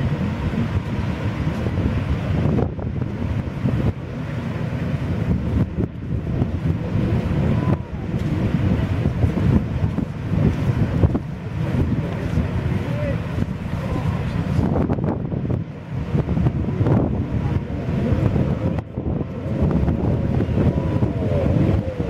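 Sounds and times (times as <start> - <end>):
distant jet skis droning: 0.0 - 22.0
wind buffeting microphone: 0.0 - 22.0.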